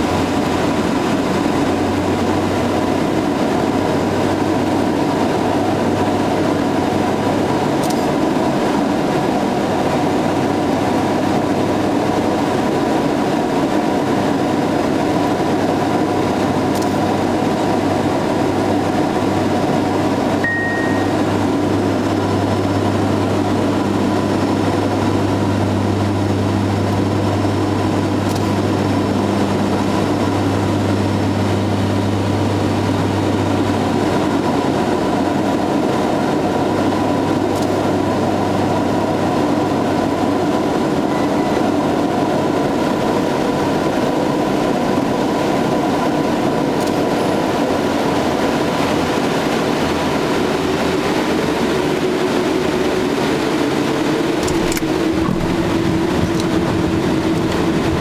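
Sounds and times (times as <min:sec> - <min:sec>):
propeller and engine drone: 0:00.0 - 0:58.0
rising tone: 0:20.4 - 0:21.4.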